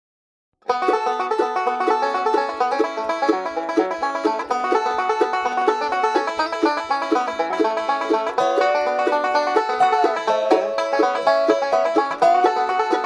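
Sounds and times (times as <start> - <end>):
banjo picking fast rolls: 0.6 - 13.0
plucked bass: 0.6 - 13.0.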